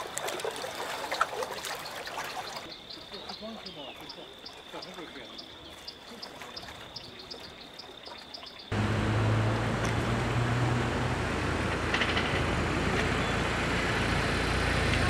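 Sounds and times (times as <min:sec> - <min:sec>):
road noise: 0:08.7 - 0:15.0
vehicle engine running: 0:08.7 - 0:15.0.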